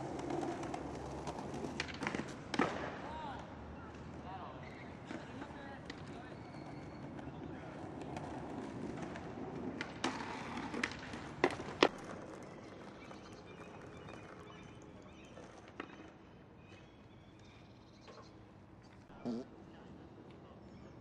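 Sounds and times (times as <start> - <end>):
skateboard clacks: 0.0 - 4.2, 4.9 - 16.2
background street murmur: 0.0 - 21.0.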